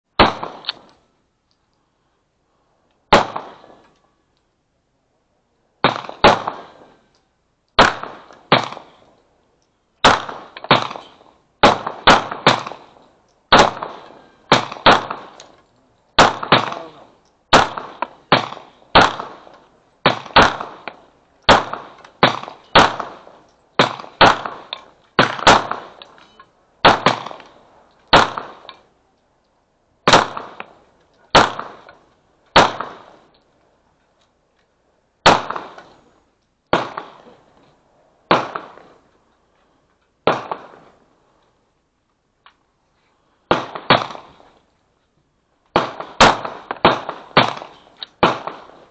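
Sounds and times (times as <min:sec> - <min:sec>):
pistol shots: 0:00.2 - 0:00.9, 0:03.1 - 0:03.9, 0:05.8 - 0:07.0, 0:07.8 - 0:09.1, 0:10.0 - 0:15.6, 0:16.2 - 0:26.2, 0:26.8 - 0:28.9, 0:30.0 - 0:33.3, 0:35.2 - 0:36.0, 0:36.7 - 0:37.4, 0:38.3 - 0:39.0, 0:40.2 - 0:41.0, 0:43.5 - 0:44.5, 0:45.7 - 0:48.9.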